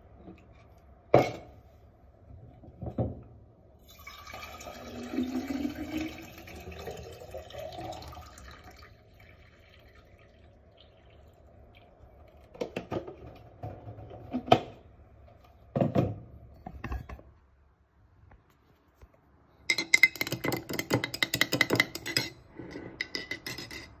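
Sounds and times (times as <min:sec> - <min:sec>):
liquid pouring into glass jar: 0:03.8 - 0:12.5
knocks and clinks: 0:19.7 - 0:24.0
metal spoon stirring in glass: 0:19.7 - 0:24.0.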